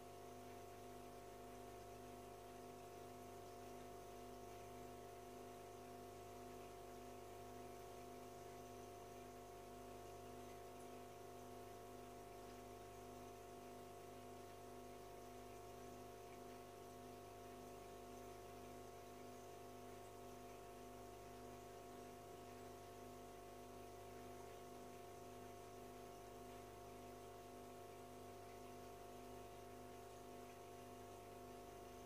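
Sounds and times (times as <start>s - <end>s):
faint filter pump hum: 0.0s - 32.0s.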